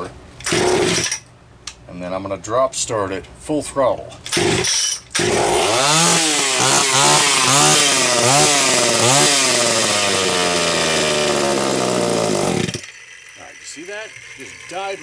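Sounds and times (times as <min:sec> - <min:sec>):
chainsaw engine revving: 0:00.4 - 0:01.2, 0:04.3 - 0:15.0.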